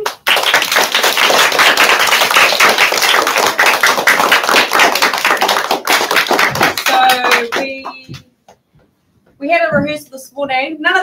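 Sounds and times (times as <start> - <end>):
people clapping: 0.0 - 8.2.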